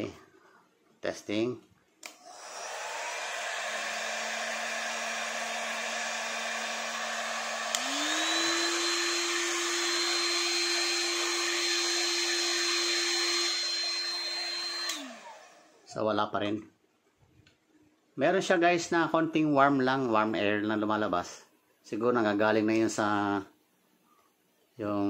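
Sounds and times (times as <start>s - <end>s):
hot air gun fan humming: 2.0s - 15.8s.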